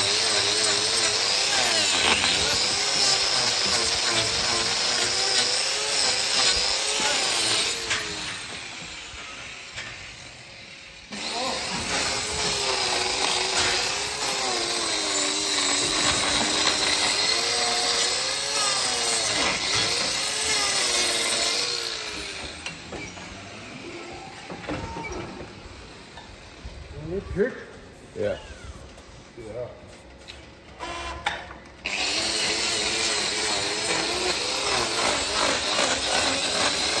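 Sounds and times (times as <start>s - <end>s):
angle grinder grinding hoof: 0.0s - 10.2s, 11.1s - 24.0s, 30.8s - 37.0s.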